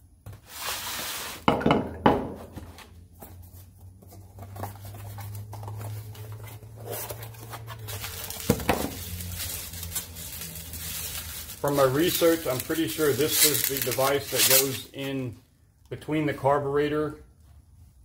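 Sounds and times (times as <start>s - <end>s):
cardboard rustling: 2.5s - 15.0s.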